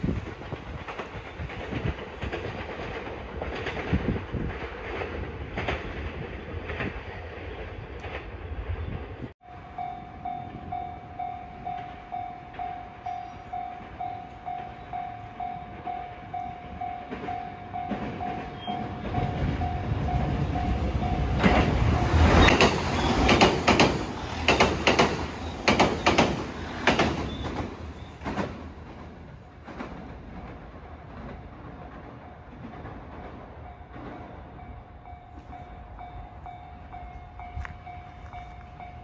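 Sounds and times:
train wheels clacking on rails: 0.0 - 7.2, 9.8 - 39.0
train rumble: 0.0 - 39.0
level crossing alarm bell: 9.4 - 22.3.

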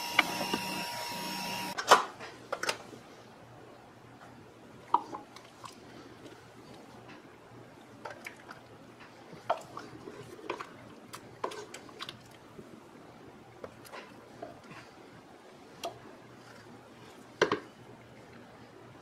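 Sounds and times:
cooked fruit squelching and dripping: 4.7 - 18.6.

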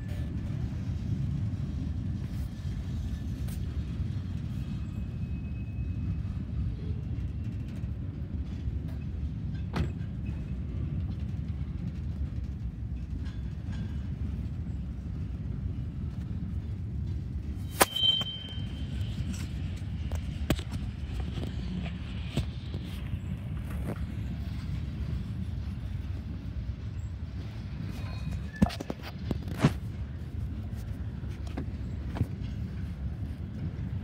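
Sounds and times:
freight train rumbling past: 0.0 - 34.0
sharp train clank: 8.9 - 10.6, 17.1 - 23.3.

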